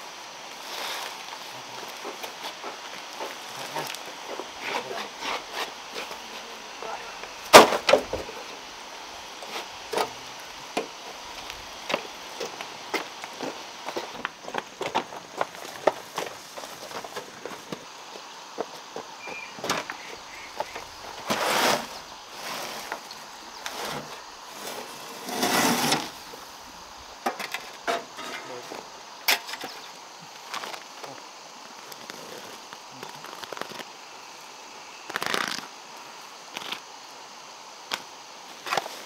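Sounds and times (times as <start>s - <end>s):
scraping and rustling: 1.8s - 8.6s, 19.2s - 26.5s, 27.2s - 29.8s.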